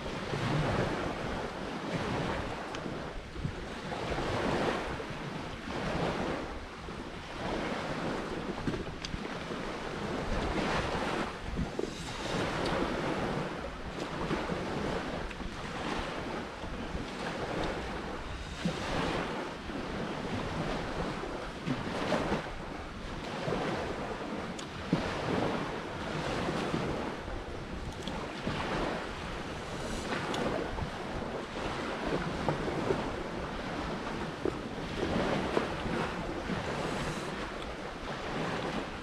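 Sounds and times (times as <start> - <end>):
surf washing onto beach: 0.0 - 39.0
wind buffeting microphone: 0.0 - 39.0.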